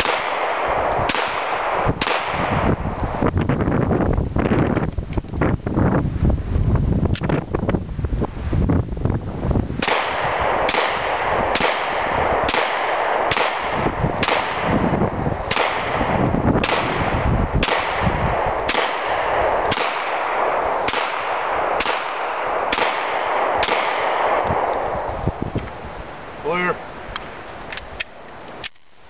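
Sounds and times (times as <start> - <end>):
pistol gunshots: 0.0 - 2.9, 9.8 - 25.1.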